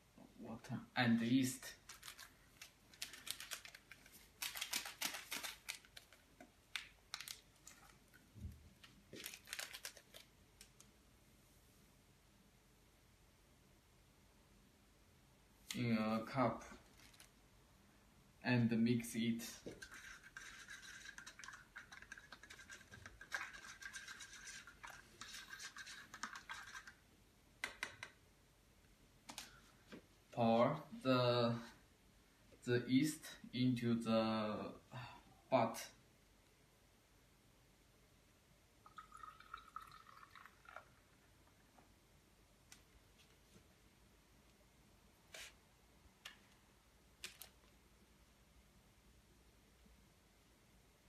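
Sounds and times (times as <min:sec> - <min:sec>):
packet crinkling and tearing: 0:01.7 - 0:08.2, 0:09.2 - 0:10.3, 0:16.8 - 0:17.3
spoon scraping paper cup: 0:19.6 - 0:27.0.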